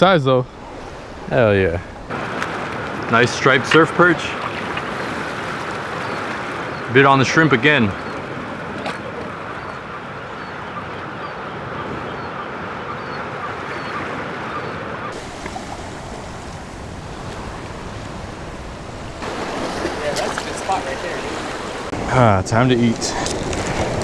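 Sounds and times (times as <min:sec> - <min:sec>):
surf breaking on rocky shore: 0:00.5 - 0:09.8, 0:15.1 - 0:24.0.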